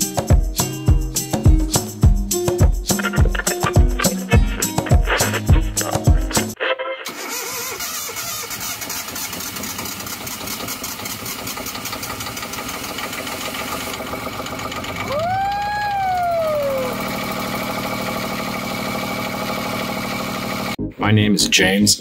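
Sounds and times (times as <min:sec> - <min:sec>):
diesel engine idling: 0:08.6 - 0:20.8
rising and falling tone: 0:15.1 - 0:18.3.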